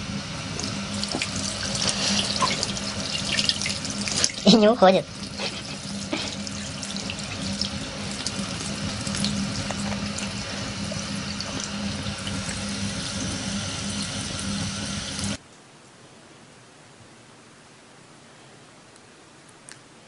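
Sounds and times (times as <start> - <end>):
low steady hum: 0.0 - 20.0
tap water running into sink: 0.5 - 15.4.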